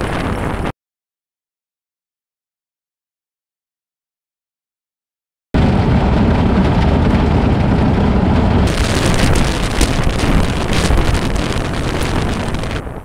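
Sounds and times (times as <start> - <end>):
wind buffeting microphone: 0.0 - 0.7, 5.6 - 13.0
tyre and suspension rumble: 5.6 - 13.0.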